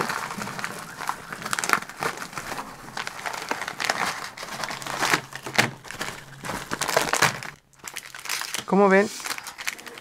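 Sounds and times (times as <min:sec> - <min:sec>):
plastic packaging crinkling: 0:00.0 - 0:10.0.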